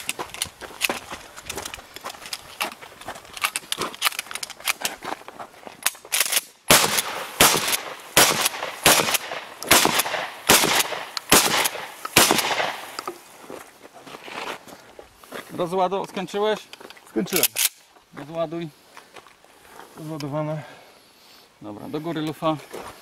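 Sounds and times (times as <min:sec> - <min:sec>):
shotgun firing: 0:06.7 - 0:13.0.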